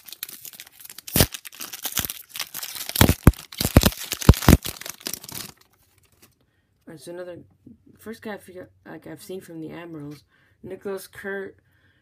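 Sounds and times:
wrapper tearing and crinkling: 0.0 - 6.3.

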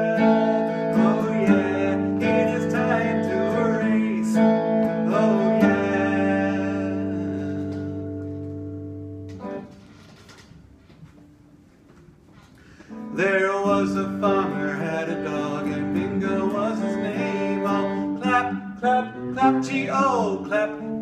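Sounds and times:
wordless singing: 0.0 - 8.2, 12.9 - 21.0
electric guitar strumming chords: 0.0 - 9.8, 12.9 - 21.0.

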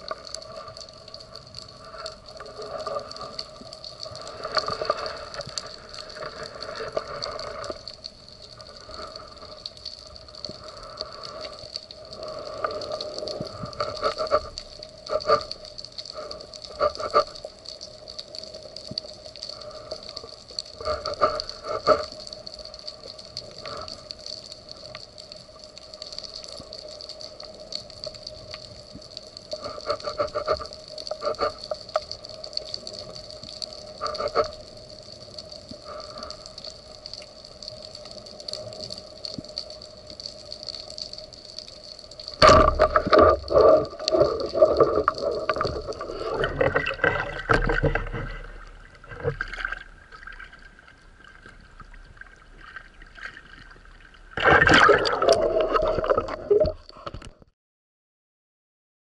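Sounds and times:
faint underwater hum: 0.0 - 57.3
churning water rushing: 42.4 - 56.9.

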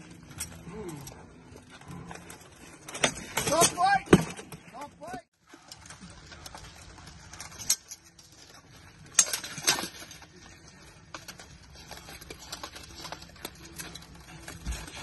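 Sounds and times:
plate armour clanking: 2.8 - 5.2.

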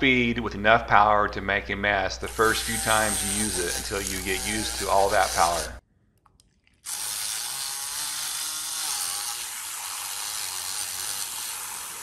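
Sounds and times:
milk frother whirring: 2.4 - 5.8, 6.8 - 12.0.

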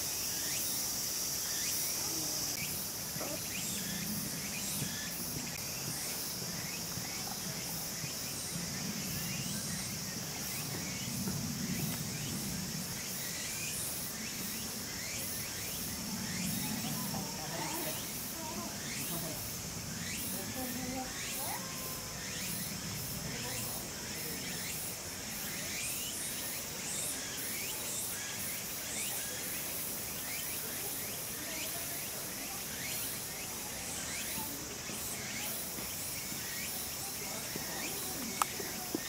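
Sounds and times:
insects chirring: 0.0 - 39.0.

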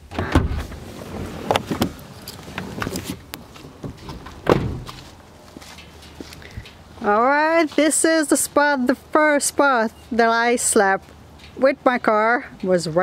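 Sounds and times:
van door shutting thud: 0.0 - 0.8, 3.8 - 5.0
van door opening clicks: 0.0 - 5.0.

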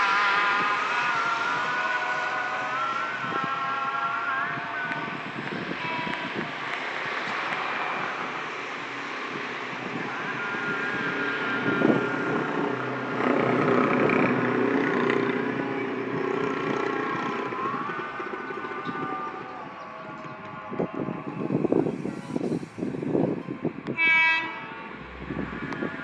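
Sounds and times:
cars passing: 0.0 - 26.0
motorcycles passing: 4.4 - 20.1.

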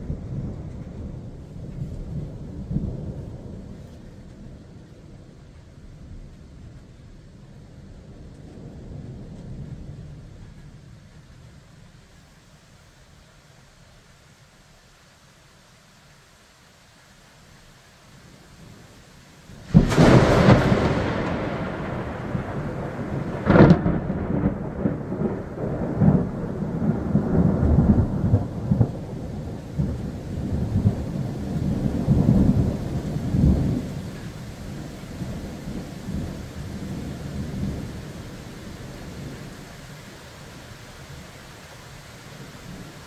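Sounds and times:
rolling thunder rumble: 0.0 - 11.9, 19.5 - 41.4
thunder crack: 19.7 - 36.4.

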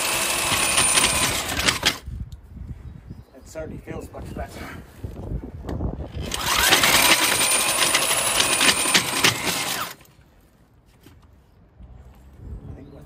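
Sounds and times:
core drill grinding stone: 0.0 - 2.0, 6.1 - 10.1.

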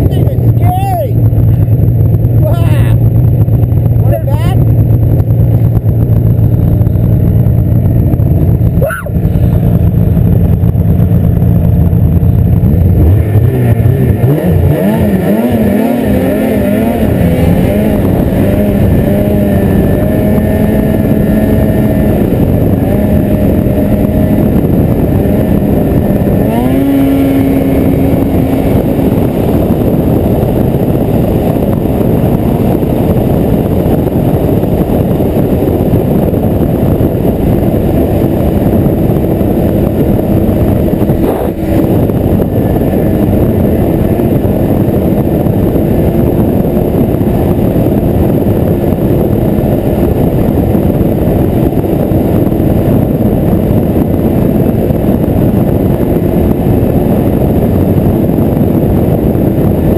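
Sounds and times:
rushing noise of riding: 0.0 - 59.9
snowmobile engine revving: 0.0 - 59.9.

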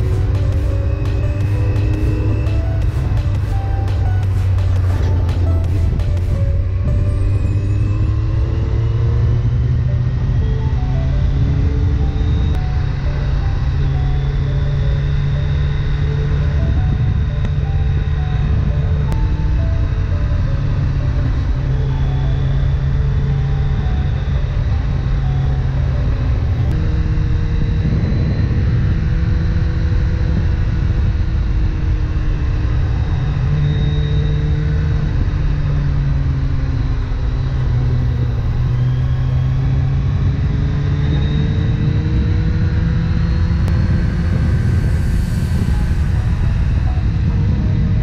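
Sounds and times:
motorcycle engine cruising: 0.0 - 48.0
wind on microphone: 25.9 - 48.0.

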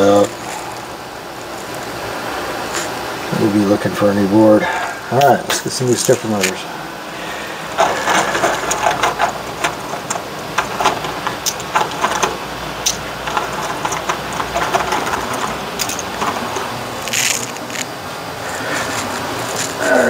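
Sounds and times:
rustling of small parts: 7.7 - 20.0.

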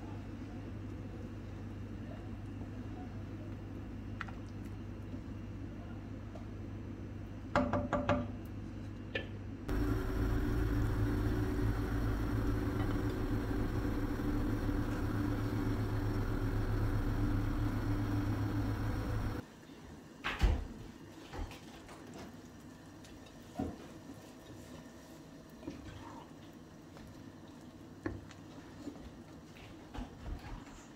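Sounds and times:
soup boiling with rumble and hiss: 9.7 - 20.1, 21.0 - 30.1.

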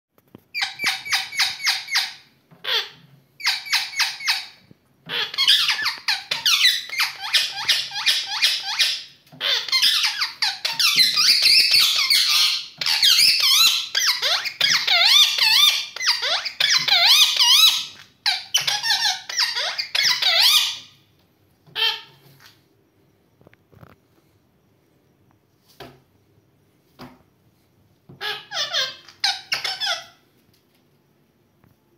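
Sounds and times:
parakeets squawking and chattering: 0.5 - 21.0, 21.7 - 22.4, 28.1 - 30.2.

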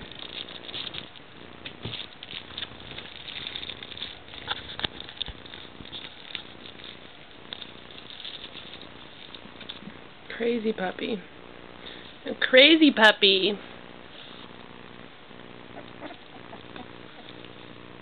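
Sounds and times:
puppy paws scratching on fabric: 0.0 - 10.0, 14.1 - 14.9, 15.6 - 18.0.

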